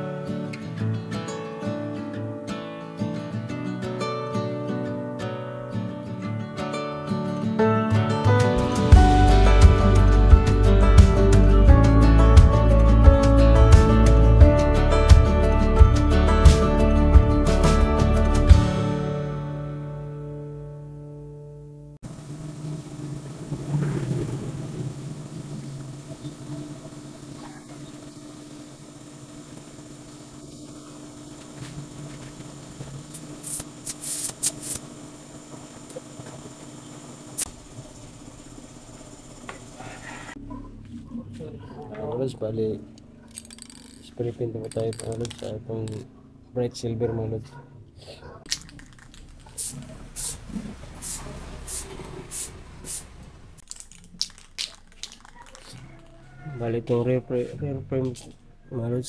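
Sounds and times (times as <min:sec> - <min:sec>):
low machine hum: 0:22.0 - 0:34.0, 0:34.6 - 0:59.0
tire scraping against rim: 0:22.2 - 0:34.9, 0:49.2 - 0:53.6
spray paint can hissing: 0:33.0 - 0:34.9, 0:48.5 - 0:53.1.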